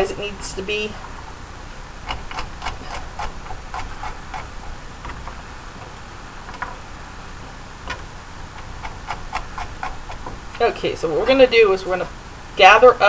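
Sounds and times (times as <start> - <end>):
knife chopping on wooden board: 2.0 - 5.4, 7.9 - 10.6.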